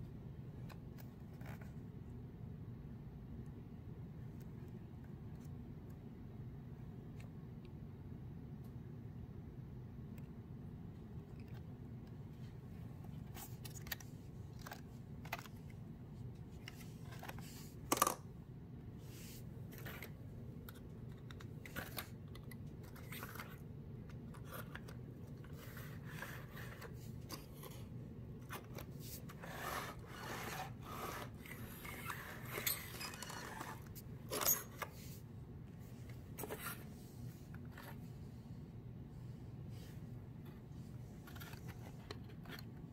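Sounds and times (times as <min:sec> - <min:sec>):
clicks and scrapes of paper model: 0:00.6 - 0:01.8, 0:11.3 - 0:15.8, 0:16.4 - 0:18.0, 0:19.1 - 0:35.2, 0:39.8 - 0:42.9.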